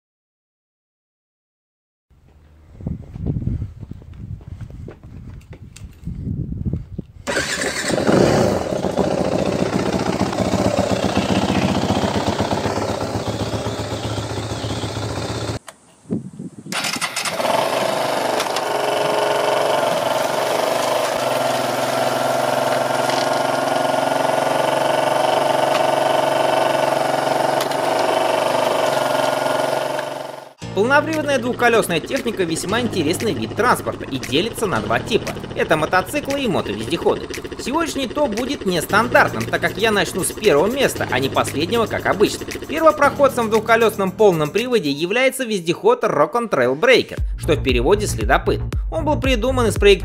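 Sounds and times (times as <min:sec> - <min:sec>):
motorcycle kick-started: 0:07.2 - 0:15.6, 0:16.7 - 0:44.7
dirt bike engine revving: 0:07.3 - 0:15.6, 0:16.7 - 0:44.7
motorcycle engine running steadily: 0:07.6 - 0:15.6, 0:17.4 - 0:44.6.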